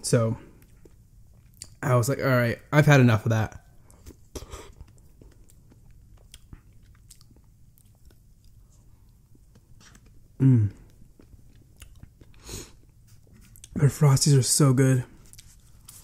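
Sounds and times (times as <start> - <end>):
wet mouth eating sounds: 0.6 - 1.8, 3.6 - 13.8
person humming mm: 10.4 - 10.8.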